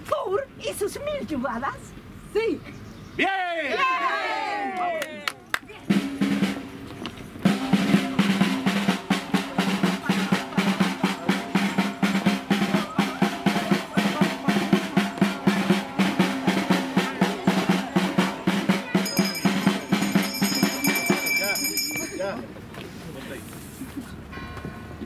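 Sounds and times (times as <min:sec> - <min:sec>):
side drum beaten with sticks: 0:05.9 - 0:22.2.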